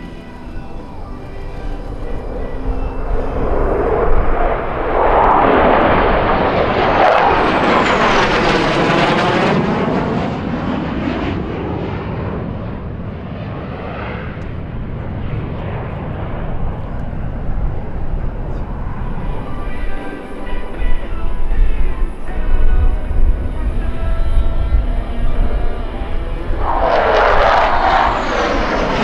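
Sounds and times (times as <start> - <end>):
jet engine flying past: 0.0 - 29.0
phasing whoosh: 1.1 - 10.4, 24.3 - 29.0.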